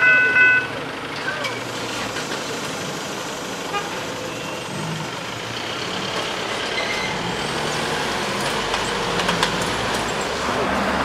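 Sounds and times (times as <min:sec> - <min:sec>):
cars idling: 0:00.0 - 0:06.7
cars pulling away: 0:00.5 - 0:11.0.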